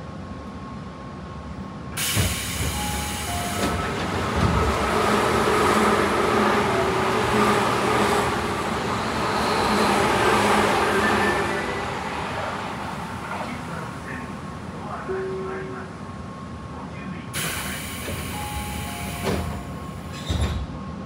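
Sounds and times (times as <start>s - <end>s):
train doors sliding open: 2.0s - 14.0s, 17.4s - 20.9s
train motors humming: 2.0s - 15.2s.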